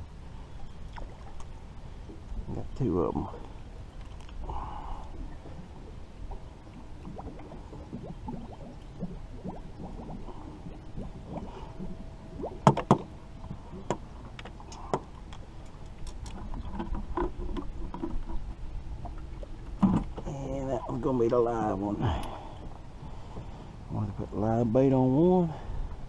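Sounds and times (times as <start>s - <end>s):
light rustle: 3.4s - 4.5s
knocks and clatter on boat: 12.6s - 13.1s, 13.8s - 20.4s.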